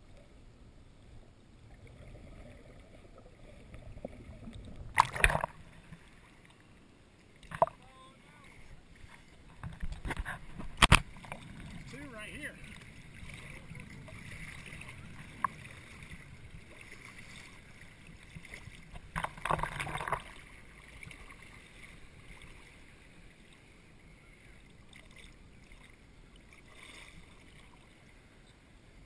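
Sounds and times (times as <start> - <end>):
muffled water sloshing: 0.0 - 29.0
water splash: 1.7 - 6.2, 7.4 - 7.9, 8.5 - 22.8.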